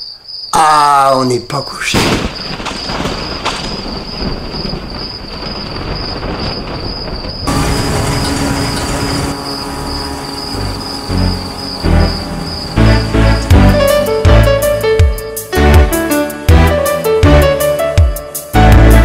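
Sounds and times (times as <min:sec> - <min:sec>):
crickets chirping: 0:00.0 - 0:16.4
threshing machine running: 0:07.2 - 0:15.0.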